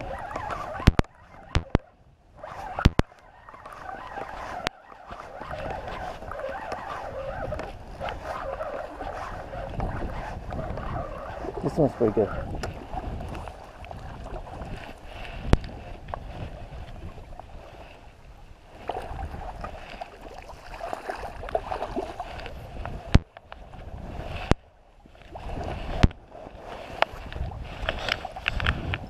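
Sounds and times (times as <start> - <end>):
wind rumbling on microphone: 0.0 - 29.0.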